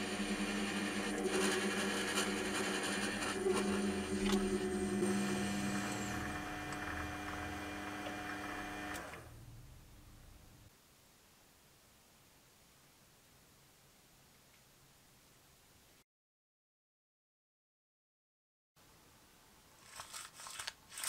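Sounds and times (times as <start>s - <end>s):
lathe motor humming: 0.0s - 9.3s.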